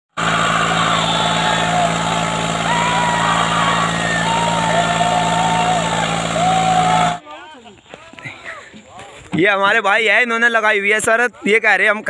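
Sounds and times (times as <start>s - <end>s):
tractor engine under load: 0.1s - 7.2s
men shouting long calls: 0.2s - 7.2s.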